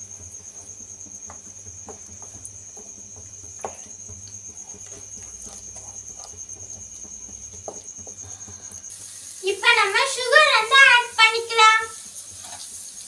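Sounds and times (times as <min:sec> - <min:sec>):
wooden spatula scraping pan: 0:00.0 - 0:09.0, 0:12.3 - 0:12.7
thick food bubbling: 0:00.0 - 0:09.4.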